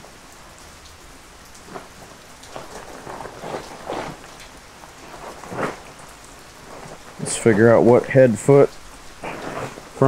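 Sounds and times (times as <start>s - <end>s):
steady rain falling: 0.0s - 10.0s
tent fabric rustling: 1.4s - 10.0s.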